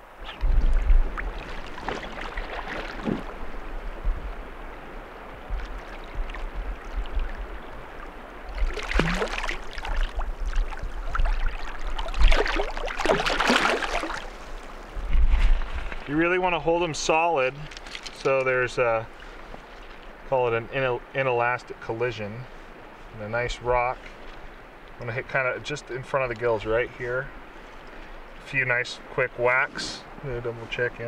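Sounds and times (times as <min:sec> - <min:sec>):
river water over gravel: 0:00.0 - 0:31.0
fish splashing at surface: 0:08.5 - 0:14.4.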